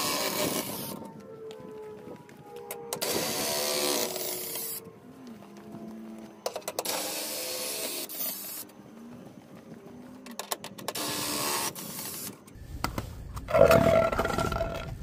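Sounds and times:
cordless drill whirring: 0:00.0 - 0:01.0, 0:02.9 - 0:04.8, 0:06.5 - 0:08.7, 0:10.8 - 0:12.4.

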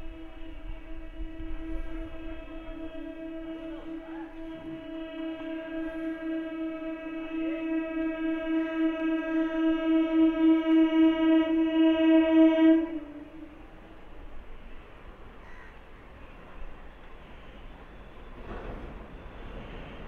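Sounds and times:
train horn blowing: 0:00.0 - 0:15.6
train running: 0:00.0 - 0:20.0.

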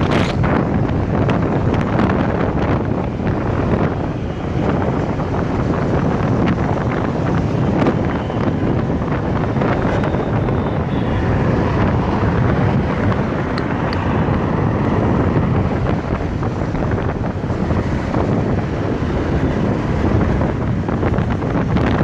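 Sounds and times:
vehicle and road noise: 0:00.0 - 0:22.0
wind buffeting microphone: 0:00.0 - 0:22.0.

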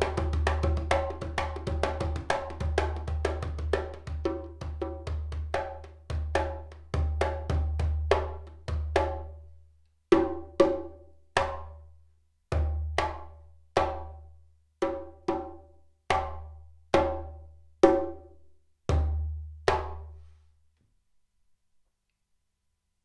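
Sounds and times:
djembe hand drum strokes: 0:00.0 - 0:09.3.

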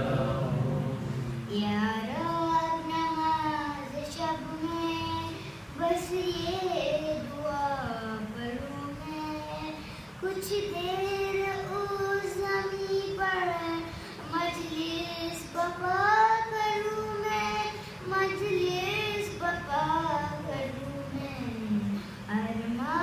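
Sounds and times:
short breaths: 0:09.8 - 0:10.2.

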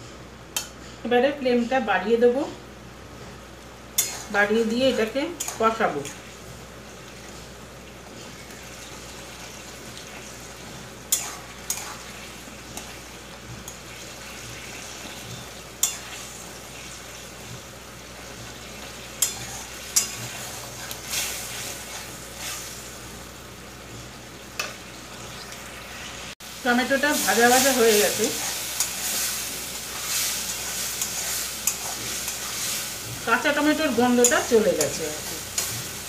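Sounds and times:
tomatoes frying and sizzling: 0:00.0 - 0:36.0
spatula scraping a pan: 0:04.0 - 0:04.4, 0:11.1 - 0:13.1, 0:19.2 - 0:22.8, 0:27.2 - 0:33.0.

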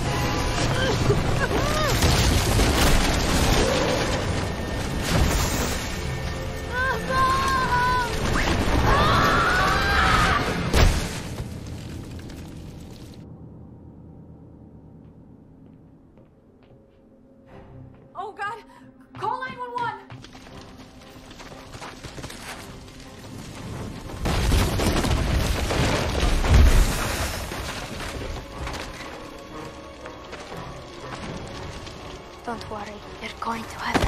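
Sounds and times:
fire roaring: 0:00.0 - 0:13.2, 0:22.2 - 0:33.3.

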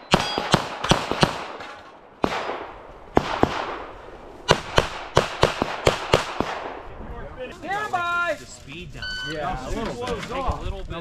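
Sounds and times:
pistol shots with echo: 0:00.0 - 0:01.6, 0:02.2 - 0:03.9, 0:04.5 - 0:06.8.

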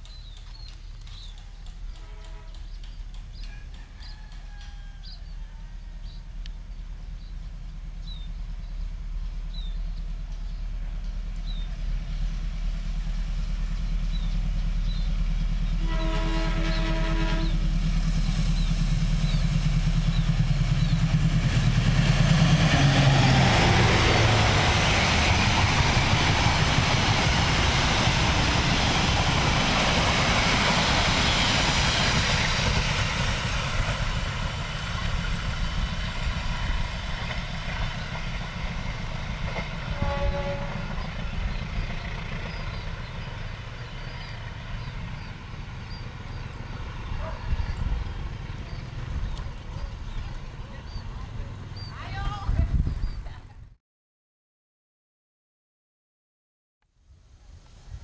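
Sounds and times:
diesel locomotive engine rumble: 0:00.0 - 0:53.8
train horn blast: 0:01.9 - 0:02.8, 0:15.7 - 0:17.6, 0:39.9 - 0:41.2.

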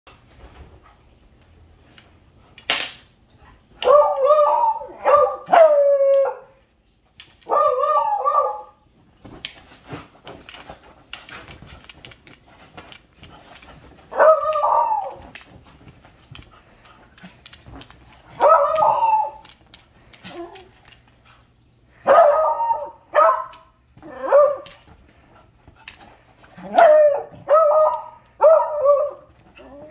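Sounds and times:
puppies scuffling and scratching: 0:08.8 - 0:21.9, 0:23.3 - 0:28.4.

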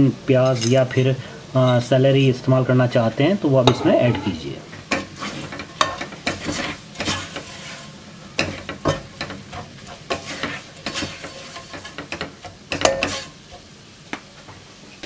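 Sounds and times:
soft sizzle of frying: 0:00.0 - 0:15.0
spatula scraping a pot: 0:03.7 - 0:13.6.

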